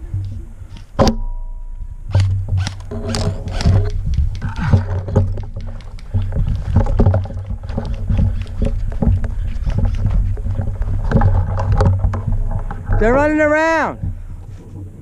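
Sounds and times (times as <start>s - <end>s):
wind rumble on microphone: 1.8s - 15.0s
gear clicking: 2.1s - 12.0s
footsteps on dry dirt: 2.8s - 13.2s.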